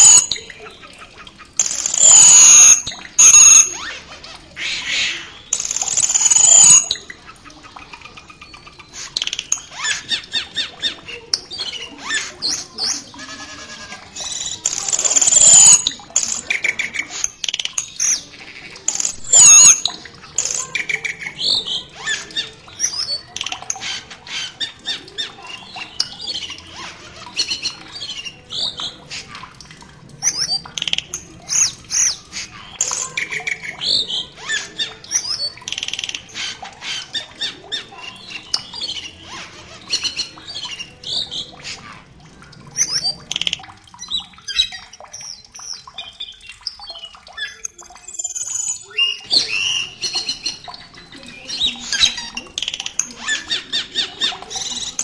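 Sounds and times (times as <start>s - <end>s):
starling calls: 0.0s - 55.0s
bird squawks whistles and clicks: 1.6s - 3.9s, 5.0s - 7.0s, 14.3s - 18.2s, 18.9s - 21.1s.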